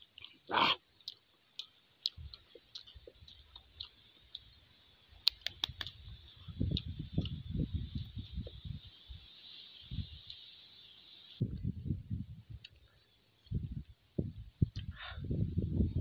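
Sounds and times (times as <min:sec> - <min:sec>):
mouth eating sound: 0:00.1 - 0:04.6.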